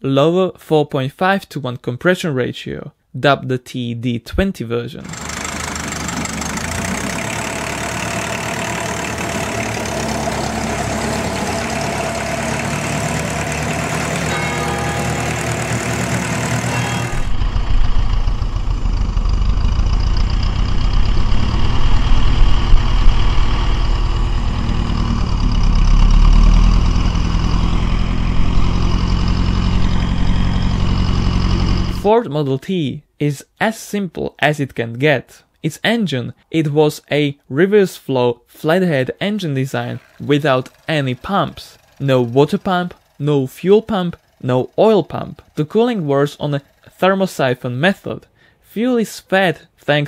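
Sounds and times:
tractor engine running: 0:05.0 - 0:32.1, 0:39.2 - 0:48.0.

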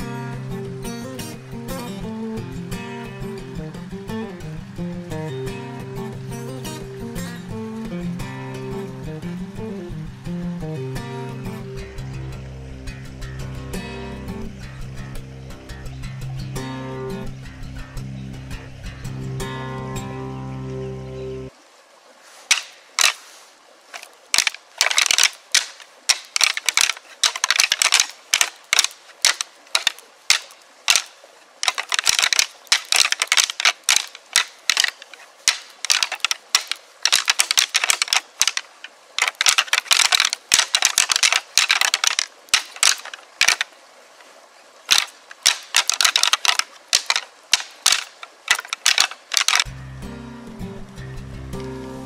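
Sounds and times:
antlers clashing and grinding: 0:22.4 - 0:23.3, 0:23.9 - 0:43.7, 0:44.9 - 0:49.7.

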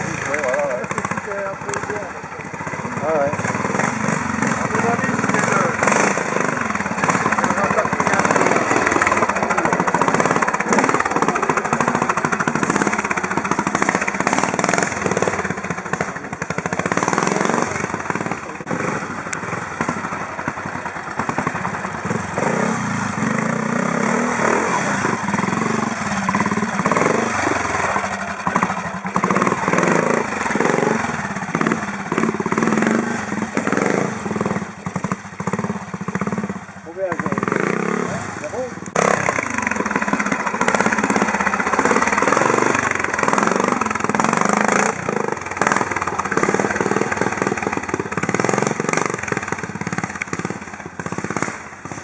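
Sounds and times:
motorcycle engines revving: 0:00.0 - 0:52.0.

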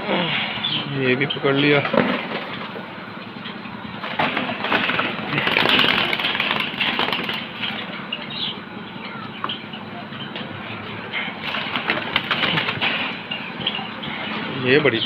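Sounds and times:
pigeons flapping wings: 0:04.0 - 0:07.8, 0:11.4 - 0:13.2
cage wire rattling: 0:04.0 - 0:08.0, 0:11.4 - 0:13.4.

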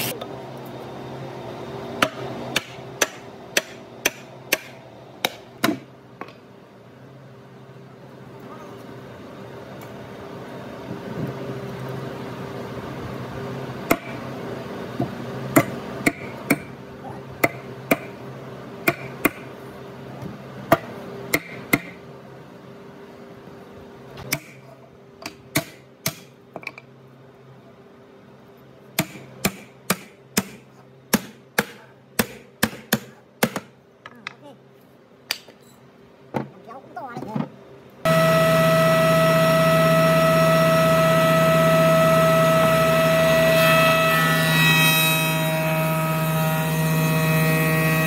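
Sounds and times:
machine hum: 0:36.0 - 0:48.0.

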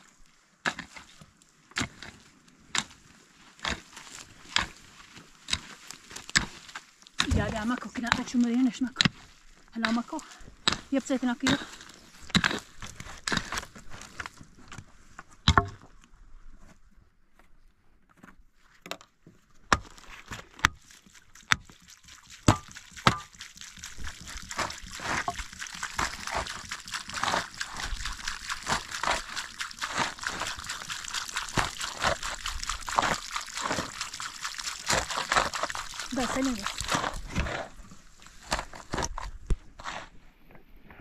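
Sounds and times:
liquid sloshing and splashing: 0:19.9 - 0:39.6.

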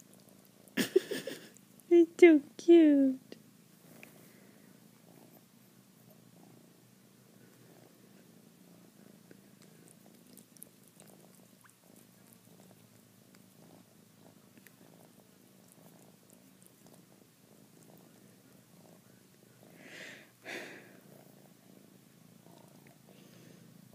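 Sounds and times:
cat purring: 0:00.0 - 0:23.9
cat licking food: 0:09.3 - 0:13.6, 0:14.4 - 0:18.6.

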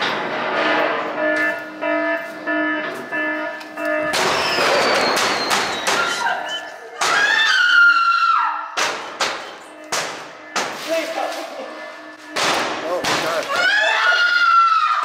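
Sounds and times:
loud high scream: 0:07.1 - 0:08.7, 0:13.5 - 0:15.0.

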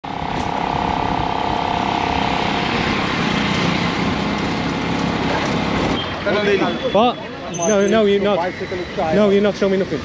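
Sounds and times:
steady tone: 0:00.0 - 0:04.5
street traffic: 0:00.0 - 0:10.0
small engine running: 0:00.1 - 0:06.0.

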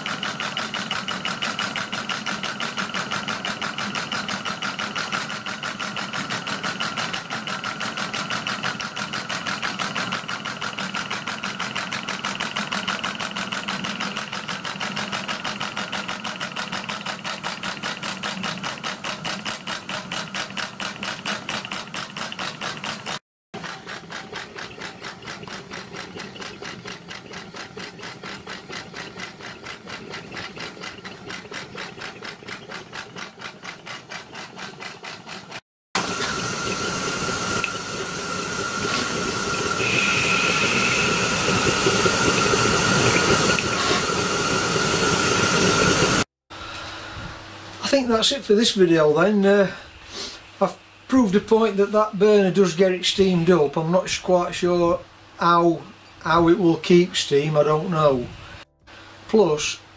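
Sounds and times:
steam locomotive beat: 0:36.0 - 0:46.2.

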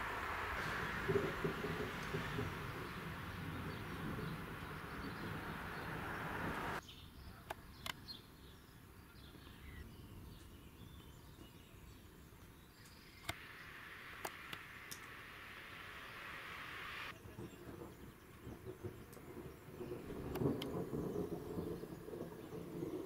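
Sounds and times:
steady rushing noise: 0:00.0 - 0:06.8, 0:13.2 - 0:23.0
sharp clicks: 0:14.2 - 0:15.2.

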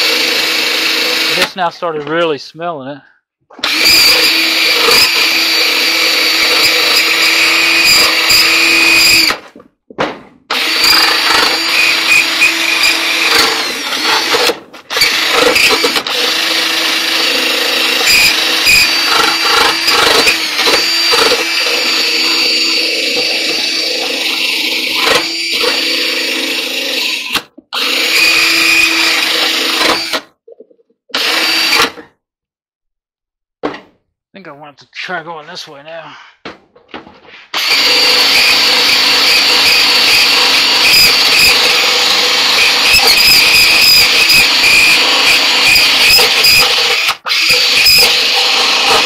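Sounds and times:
cordless drill grinding sheet metal: 0:00.0 - 0:02.0, 0:03.5 - 0:09.5, 0:10.5 - 0:30.3, 0:31.1 - 0:32.0, 0:37.5 - 0:49.0.

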